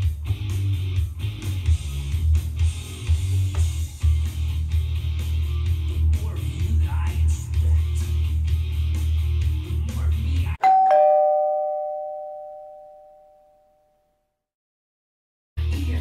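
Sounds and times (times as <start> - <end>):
music: 0.0 - 10.6, 15.6 - 16.0
two-note doorbell chime: 10.6 - 14.0.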